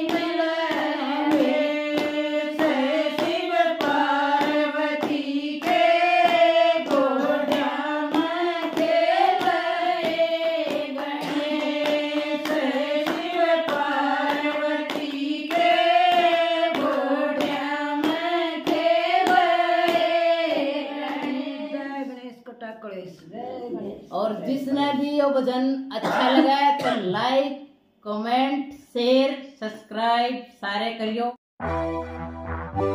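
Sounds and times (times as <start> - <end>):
hand claps: 0.0 - 21.5
women singing together: 0.0 - 22.4.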